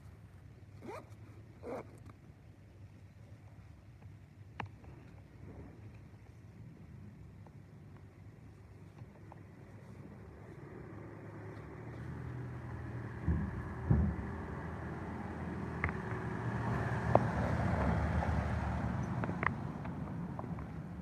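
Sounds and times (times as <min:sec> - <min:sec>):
dull thumps: 0:13.2 - 0:14.7.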